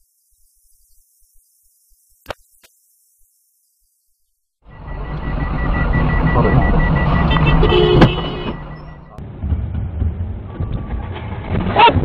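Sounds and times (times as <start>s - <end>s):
street traffic: 4.6s - 12.0s
rapid high-pitched beeping: 4.7s - 9.2s.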